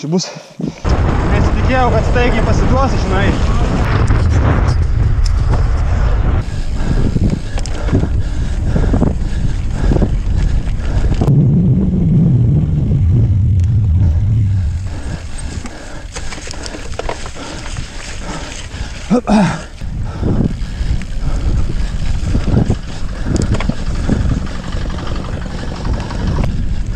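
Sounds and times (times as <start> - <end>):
wind rumble on microphone: 0.8 - 26.9
bike rolling over dirt: 0.9 - 26.9
bike clunks and rattles: 14.8 - 19.0, 21.8 - 26.9.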